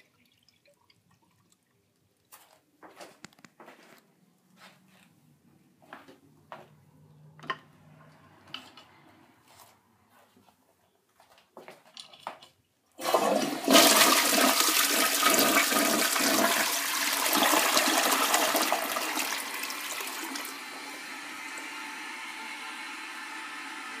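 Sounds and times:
toilet flushing: 13.0s - 24.0s.

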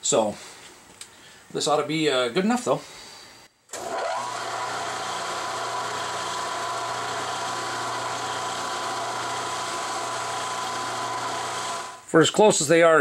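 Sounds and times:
milling machine spindle humming: 3.8s - 12.0s.

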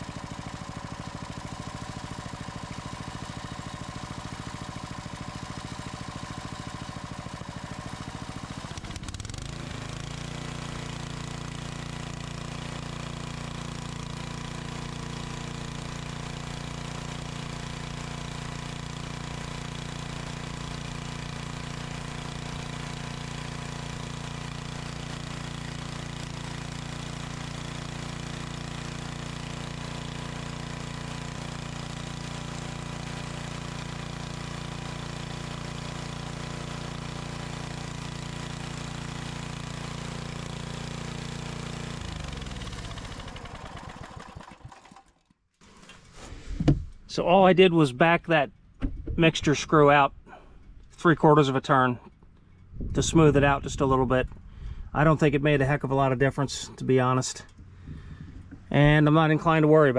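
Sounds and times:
small engine running: 0.0s - 59.9s.

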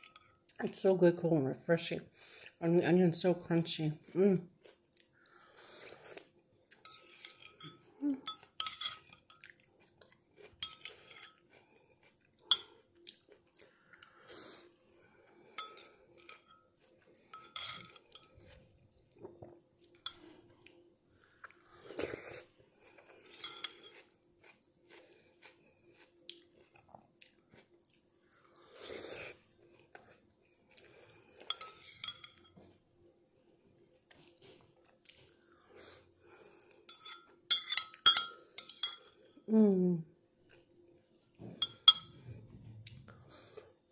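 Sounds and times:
person chewing: 4.6s - 32.0s, 34.1s - 38.1s
spoon clinking on ceramic bowl: 6.8s - 9.5s, 15.6s - 16.7s, 17.3s - 18.3s, 31.5s - 32.6s, 36.9s - 39.1s, 41.6s - 42.2s.

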